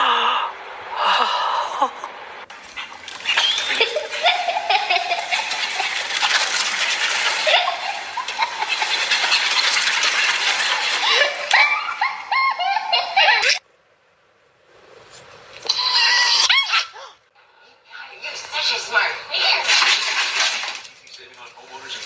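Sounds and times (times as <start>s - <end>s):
paws scrabbling on tile: 2.5s - 11.9s, 19.6s - 22.0s.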